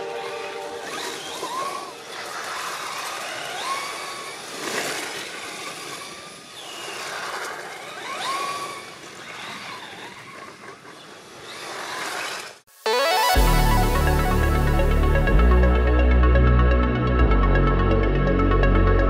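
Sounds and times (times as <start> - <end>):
electric motor whining: 0.0 - 12.5.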